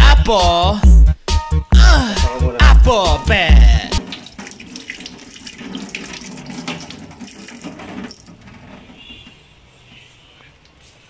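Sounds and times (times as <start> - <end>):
apple being rinsed with splashes: 3.8 - 8.7
tap water running into steel sink: 3.9 - 8.6.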